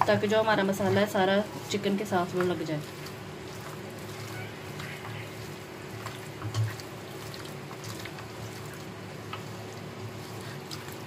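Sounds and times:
hand squishing chicken in bowl: 2.3 - 11.0.

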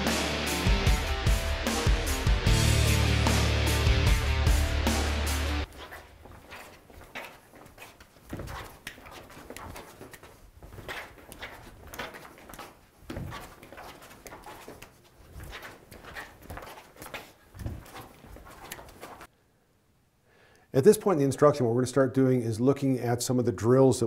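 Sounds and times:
clothing rustle: 5.6 - 19.3
footsteps scuffing on hard floor: 5.6 - 19.3.

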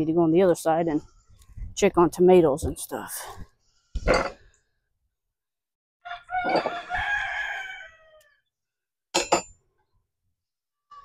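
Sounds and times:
rooster crowing: 6.0 - 8.5.

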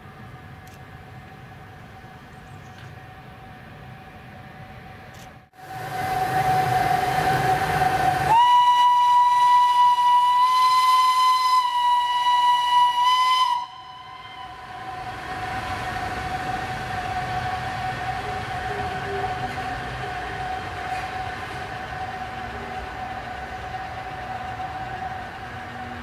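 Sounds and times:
locomotive running hum: 0.0 - 26.0
locomotive whistle blast: 5.9 - 15.2.

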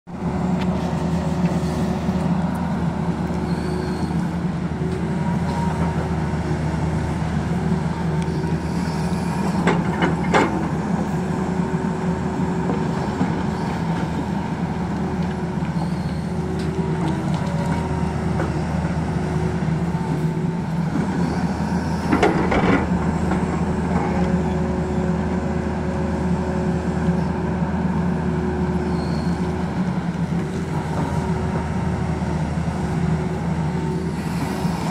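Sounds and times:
excavator diesel engine running: 0.1 - 34.9
hydraulic whine: 33.8 - 34.9.

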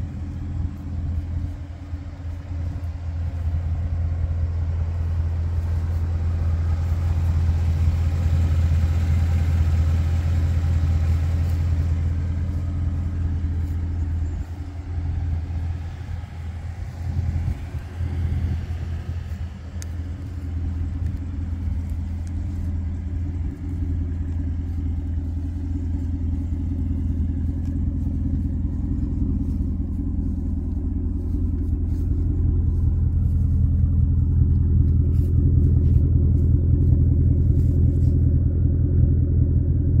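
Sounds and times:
car engine idling: 0.0 - 40.0.

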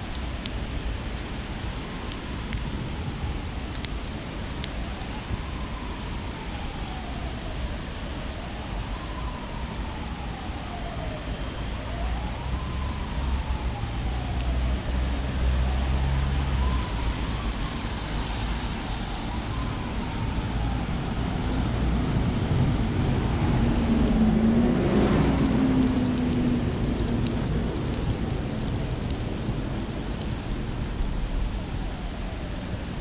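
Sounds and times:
traffic on a wet road: 0.0 - 33.0
wind buffeting microphone: 19.5 - 33.0.

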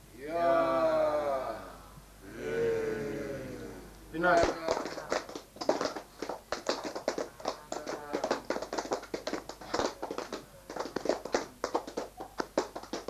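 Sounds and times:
group clapping: 4.2 - 13.0.

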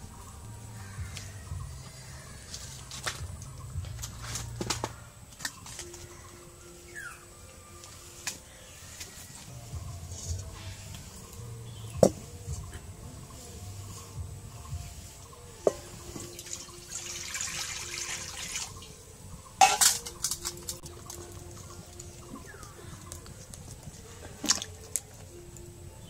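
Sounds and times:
water pouring into wok: 16.3 - 18.8.

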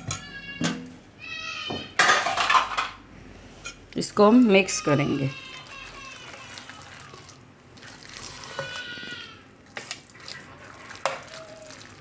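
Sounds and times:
spoon stirring thick batter: 4.7 - 12.0.

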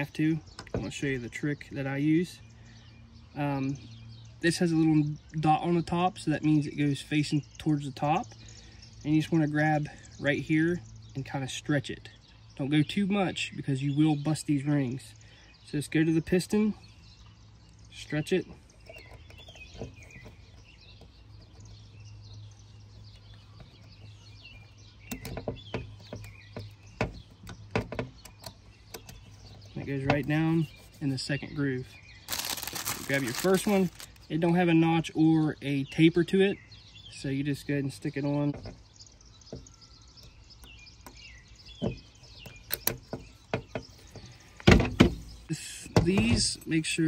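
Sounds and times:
faint birds chirping: 0.0 - 47.0.

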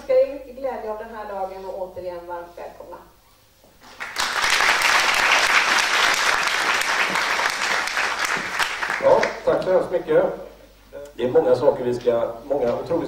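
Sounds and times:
audience applauding: 3.9 - 9.5.

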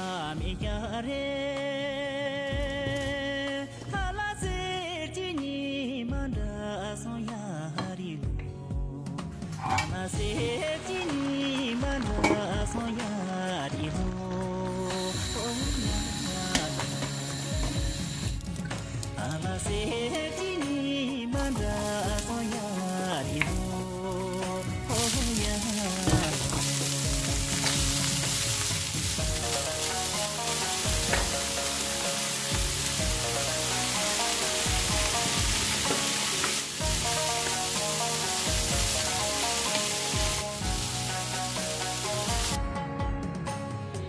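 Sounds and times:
background music: 0.0 - 44.0
vegetables sizzling in oil: 14.8 - 18.6, 21.4 - 42.6.

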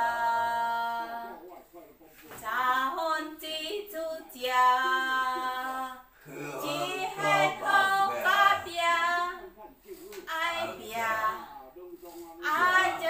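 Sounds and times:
woman singing unaccompanied: 0.0 - 1.4, 2.4 - 9.4, 10.3 - 11.4, 12.4 - 13.0.

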